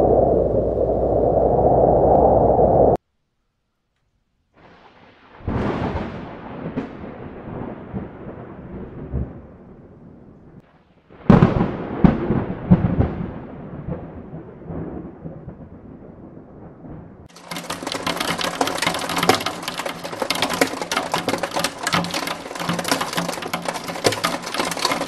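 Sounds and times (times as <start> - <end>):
thunder cracks and rumble: 0.0 - 3.0, 4.6 - 25.0.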